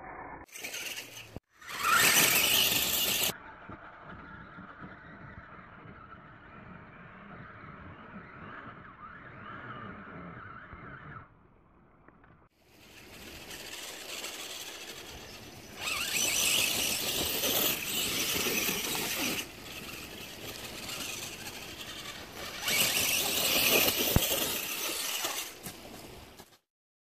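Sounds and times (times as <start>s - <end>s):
toy car motor whining: 0.5s - 3.4s, 12.7s - 26.4s.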